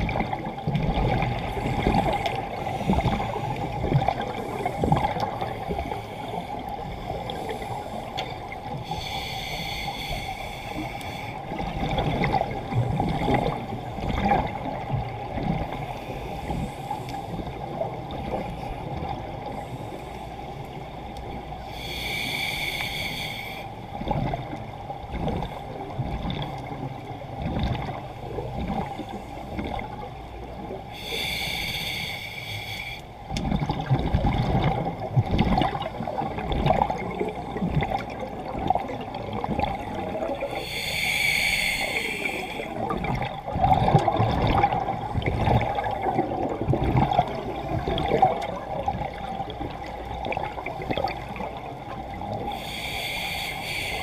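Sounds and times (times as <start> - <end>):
hissing regulator inhalations: 1.6 - 11.5, 21.6 - 23.8, 30.9 - 33.2, 40.4 - 42.9, 52.4 - 54.0.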